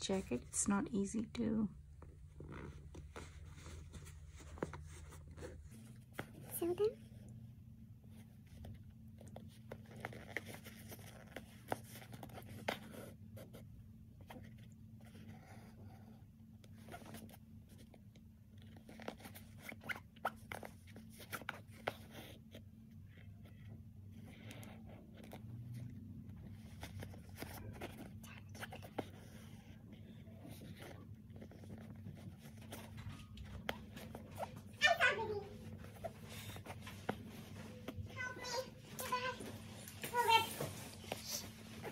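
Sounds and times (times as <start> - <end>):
faint low hum: 0.0 - 41.9
jacket fabric rustling: 2.0 - 7.0, 24.3 - 41.9.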